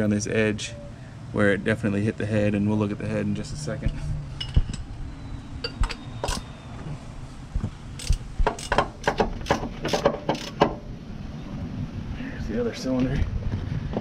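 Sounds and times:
ratchet wrench clicking: 5.9s - 6.4s, 8.0s - 10.7s.

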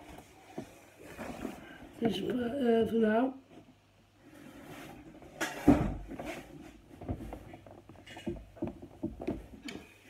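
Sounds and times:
clothes rustling: 0.0s - 2.4s.

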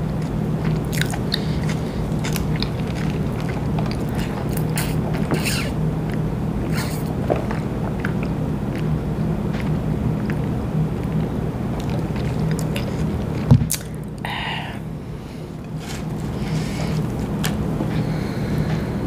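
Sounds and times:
steady low hum: 0.0s - 19.0s
sipping through a straw: 4.8s - 5.8s.

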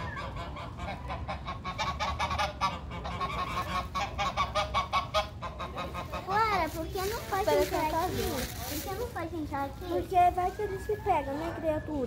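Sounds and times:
geese honking: 0.0s - 9.0s.

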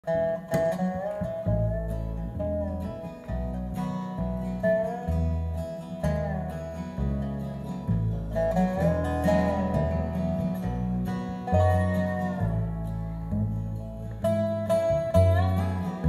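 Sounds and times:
plucked upright bass: 0.0s - 16.0s
strummed acoustic guitar: 0.0s - 16.0s
sliding lead melody: 0.1s - 16.0s.

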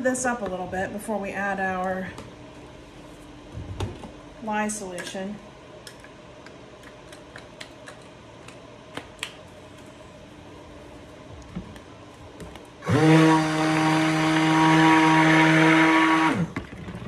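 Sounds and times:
stick blender motor running: 12.8s - 17.0s.

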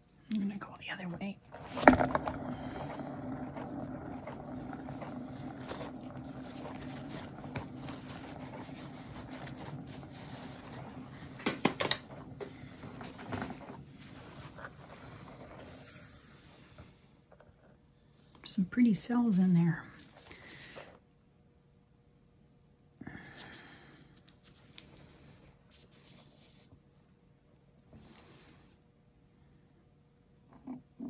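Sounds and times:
turntable humming: 1.4s - 15.7s.

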